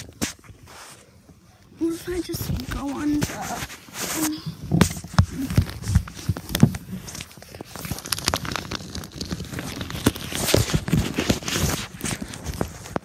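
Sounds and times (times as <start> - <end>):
clothes rustling: 0.0 - 13.0
knocks and thumps: 4.5 - 6.8.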